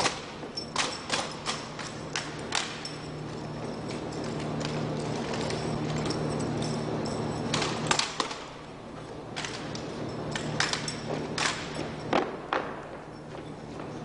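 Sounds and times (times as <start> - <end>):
rifle slaps and clacks: 0.0 - 2.9, 7.6 - 8.5
low steady hum: 0.0 - 14.0.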